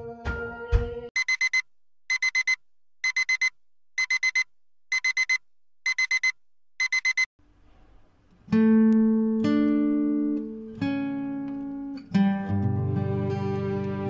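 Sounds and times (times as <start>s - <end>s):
phone alarm beeping: 1.2s - 7.3s.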